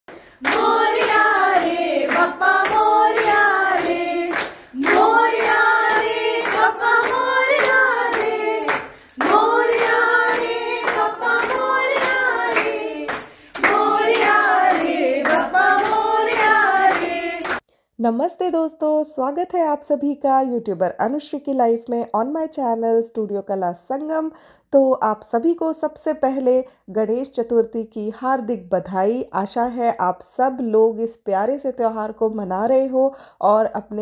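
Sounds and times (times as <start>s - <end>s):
rhythmic clapping: 0.0s - 17.6s
women singing in unison: 0.1s - 17.6s.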